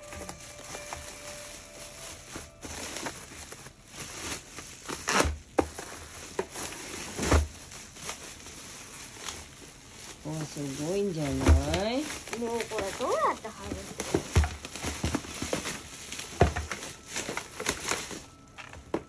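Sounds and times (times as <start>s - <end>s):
bubble wrap crinkling: 0.0s - 19.0s.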